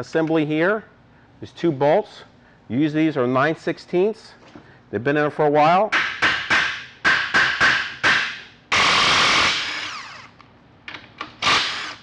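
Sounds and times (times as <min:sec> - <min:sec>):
impact gun whirring: 0:08.7 - 0:10.4, 0:11.4 - 0:12.0.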